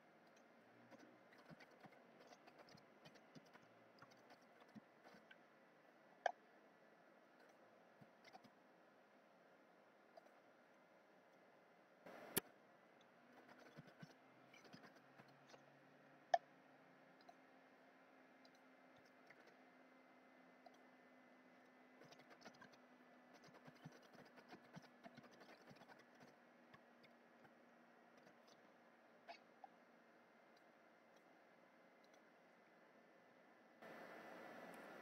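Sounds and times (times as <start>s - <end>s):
mouse clicks: 12.1s - 12.5s.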